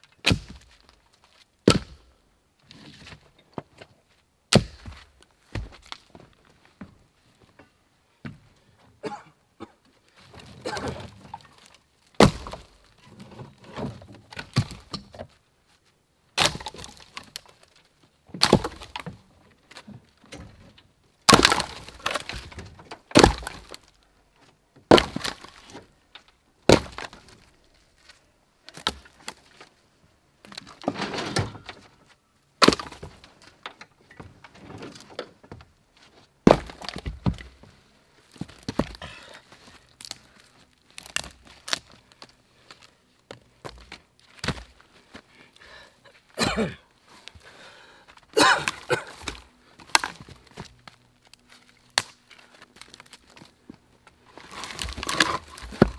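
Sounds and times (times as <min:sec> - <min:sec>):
firewood logs thunking onto pile: 0:00.2 - 0:02.1, 0:04.5 - 0:06.4, 0:10.2 - 0:15.4, 0:16.4 - 0:24.0, 0:24.8 - 0:29.7, 0:30.4 - 0:35.7, 0:36.4 - 0:45.2, 0:48.3 - 0:53.6, 0:54.2 - 0:55.9
wood scraping: 0:30.4 - 0:45.4, 0:48.5 - 0:55.9.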